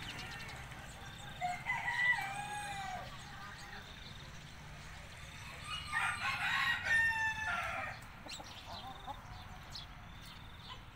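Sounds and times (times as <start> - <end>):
rooster crowing: 1.4 - 3.2, 5.4 - 8.0.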